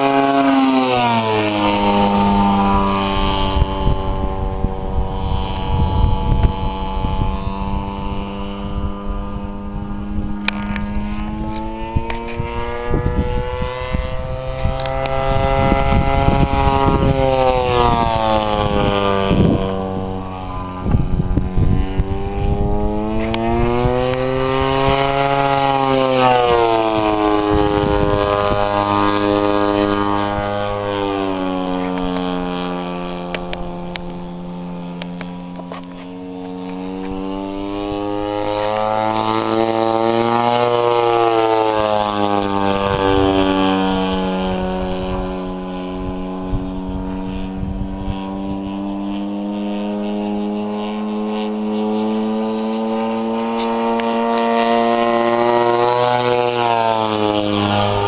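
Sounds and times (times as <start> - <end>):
model plane engine and propeller: 0.0 - 58.0.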